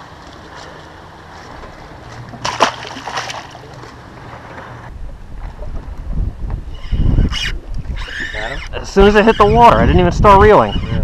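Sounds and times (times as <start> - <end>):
fish splash in water: 2.4 - 3.6.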